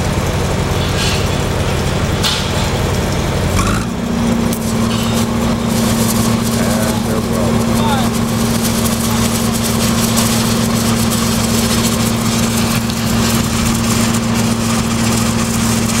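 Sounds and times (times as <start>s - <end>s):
engine running steadily: 0.0s - 16.0s.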